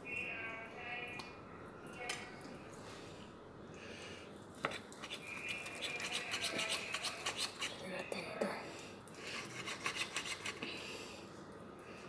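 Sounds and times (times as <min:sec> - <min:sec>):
knife scraping fish skin: 0:04.6 - 0:07.8, 0:09.3 - 0:10.6.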